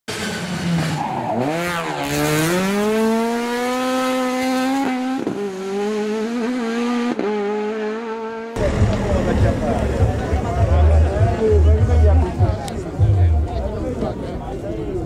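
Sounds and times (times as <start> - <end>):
car engine at high revs: 0.1 - 10.8.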